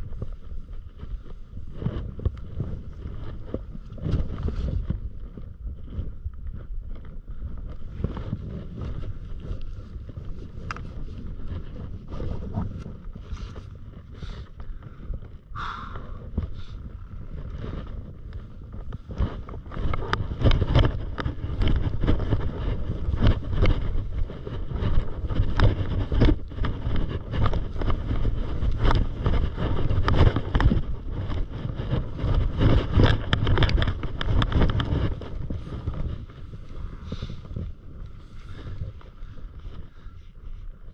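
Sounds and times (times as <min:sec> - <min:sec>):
wind buffeting microphone: 0:00.0 - 0:40.9
skis scraping on snow: 0:15.6 - 0:40.2.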